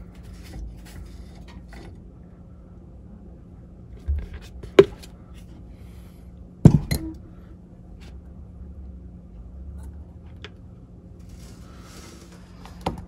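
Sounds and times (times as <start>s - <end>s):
low hum: 0.0s - 12.5s.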